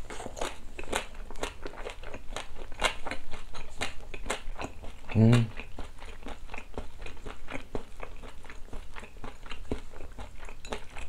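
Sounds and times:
wet chewing and crunching: 0:00.0 - 0:11.0.

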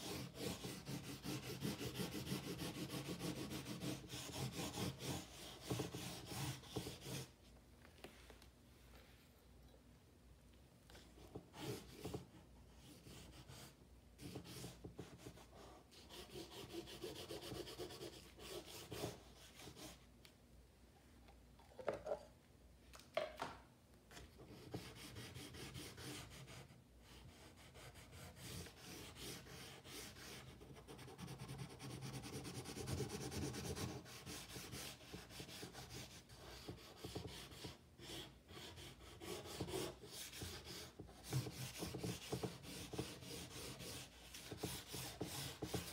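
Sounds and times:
drawing stick scratching paper: 0:00.0 - 0:07.4, 0:11.2 - 0:20.0, 0:24.4 - 0:45.9.

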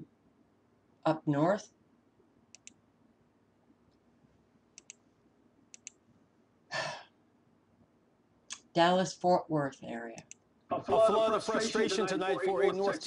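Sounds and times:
computer mouse clicks: 0:02.5 - 0:02.8, 0:04.8 - 0:05.0, 0:05.7 - 0:06.0, 0:10.2 - 0:10.5.

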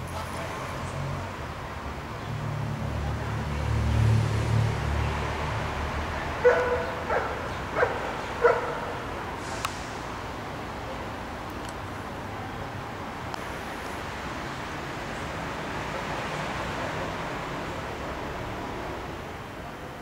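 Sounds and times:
low traffic rumble: 0:00.0 - 0:20.0
dog barking: 0:06.4 - 0:09.0.

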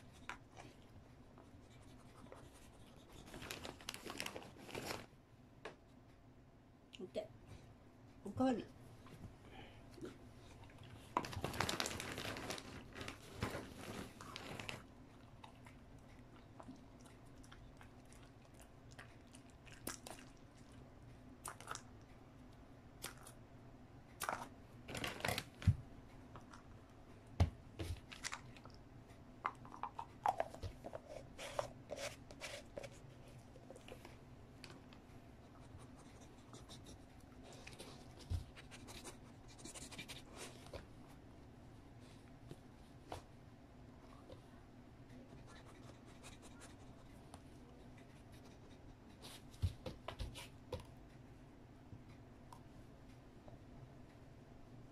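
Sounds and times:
packet crinkling and tearing: 0:03.3 - 0:05.0, 0:11.2 - 0:14.8.

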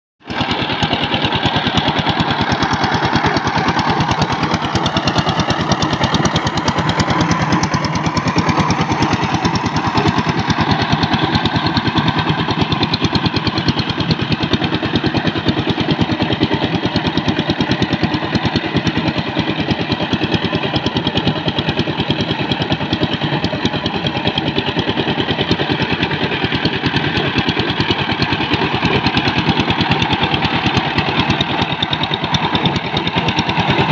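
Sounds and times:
diesel tiller engine chugging: 0:00.2 - 0:33.9.

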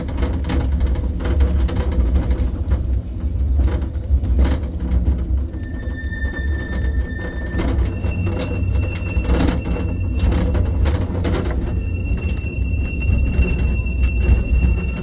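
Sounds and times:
tram rumbling and rattling: 0:00.0 - 0:15.0
high steady whine: 0:05.5 - 0:15.0.

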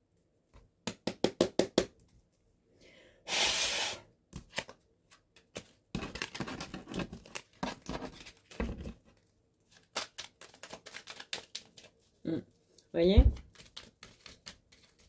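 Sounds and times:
cards shuffled by hand: 0:09.7 - 0:12.1, 0:13.3 - 0:15.0.

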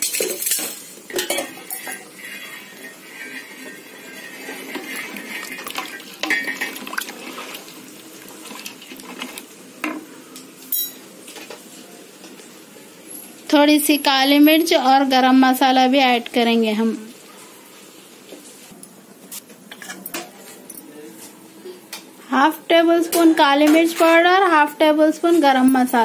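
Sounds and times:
spatula scraping steel pot: 0:00.0 - 0:09.4.

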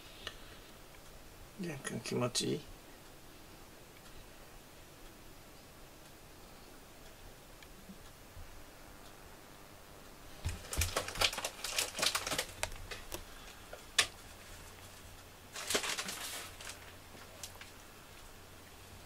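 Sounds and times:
close rustling and crinkling: 0:10.3 - 0:18.3.

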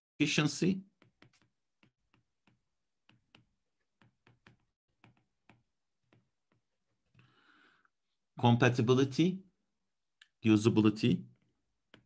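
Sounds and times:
stylus tapping tablet screen: 0:00.6 - 0:07.1, 0:11.3 - 0:12.0.

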